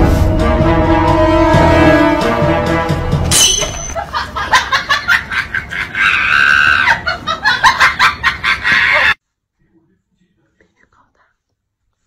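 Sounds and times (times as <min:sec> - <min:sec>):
high-pitched voice laughing: 0:04.0 - 0:09.2
scream-like cry: 0:05.8 - 0:07.1.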